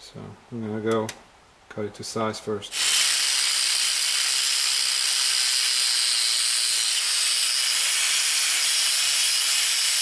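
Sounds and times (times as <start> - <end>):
angle grinder cutting steel: 2.7 - 10.0.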